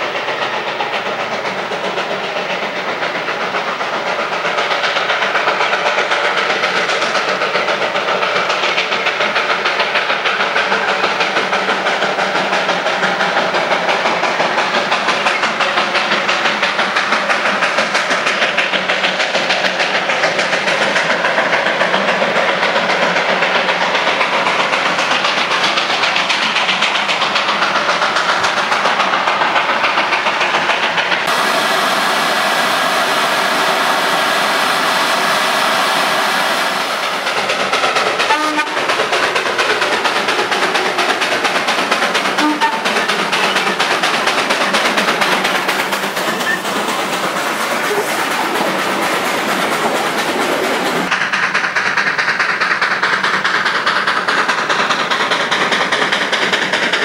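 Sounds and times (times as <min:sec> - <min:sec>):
steam locomotive exhaust chuffs: 0:00.0 - 0:57.0
long steam whistle: 0:38.3 - 0:38.8, 0:42.4 - 0:42.9.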